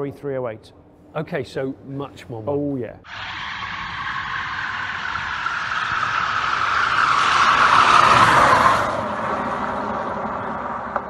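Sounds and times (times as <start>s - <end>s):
tyres squealing in a burnout: 3.1s - 10.9s.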